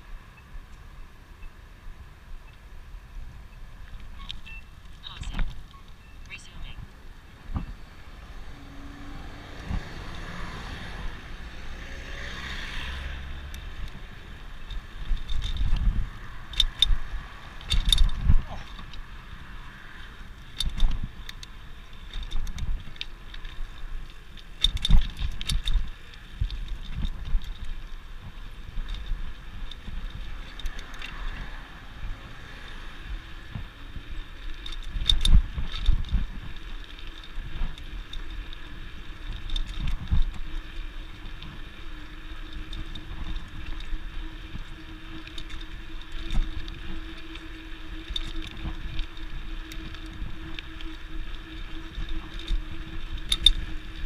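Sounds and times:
bicycle tyres on concrete: 0.0s - 54.0s
wheels thumping over joints: 12.1s - 32.2s.

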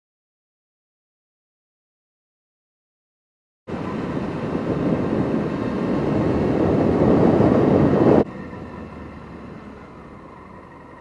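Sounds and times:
wind rushing over microphone: 3.7s - 9.6s
motorcycle engine: 3.7s - 11.0s.

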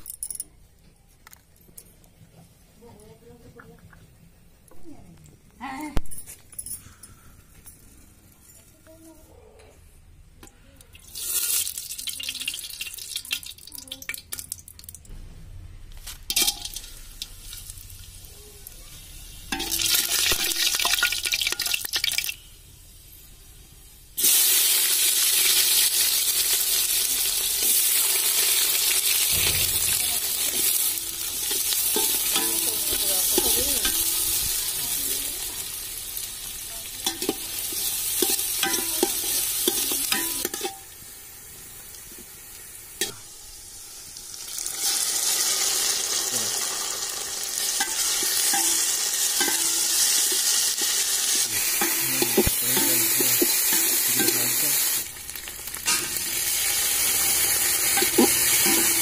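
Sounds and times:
onions sizzling in hot oil: 11.0s - 14.9s, 15.9s - 59.0s
metal spatula scraping a pot: 55.9s - 59.0s.

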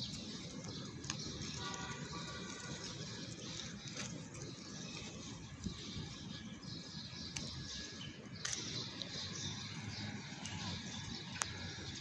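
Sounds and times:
distant traffic rumble: 0.0s - 12.0s
small clicks: 8.4s - 9.1s.

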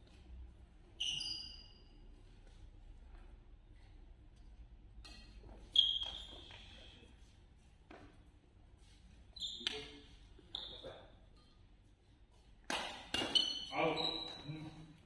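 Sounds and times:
rackets striking shuttlecock: 12.6s - 13.7s.

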